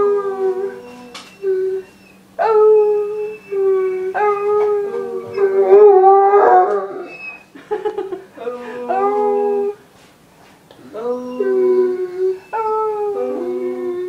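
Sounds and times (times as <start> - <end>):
dog howling: 0.0 - 7.5, 10.9 - 14.0.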